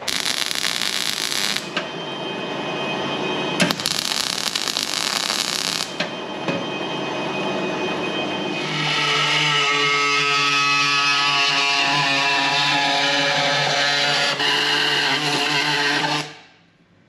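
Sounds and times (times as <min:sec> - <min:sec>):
welding arc crackling: 0:00.0 - 0:01.8, 0:03.6 - 0:06.1.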